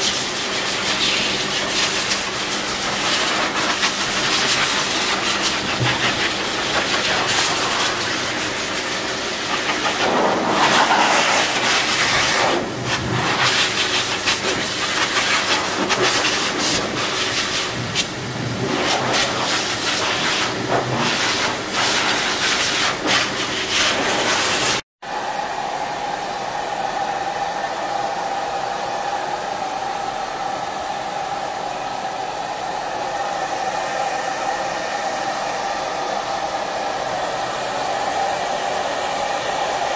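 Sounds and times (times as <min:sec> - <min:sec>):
dryer whining: 0:00.0 - 0:39.9
grooming blower rushing air: 0:00.0 - 0:39.9.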